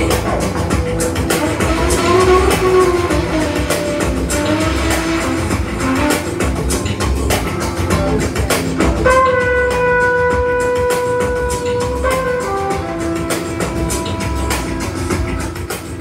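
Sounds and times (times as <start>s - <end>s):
drum beat: 0.0s - 16.0s
melodic notes: 1.2s - 9.5s.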